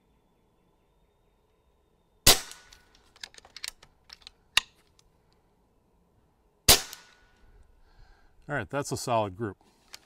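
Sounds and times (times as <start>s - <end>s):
air rifle shots: 2.2s - 2.9s, 6.7s - 7.3s
rifle action clicks: 2.5s - 5.1s.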